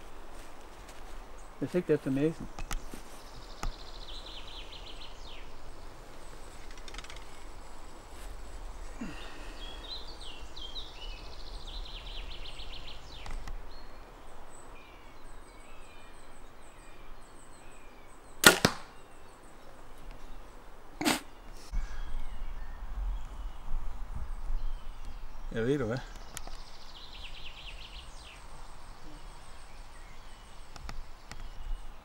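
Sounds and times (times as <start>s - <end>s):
songbirds chirping and trilling: 0.0s - 32.0s
sharp double crack of bow shot: 18.4s - 18.9s.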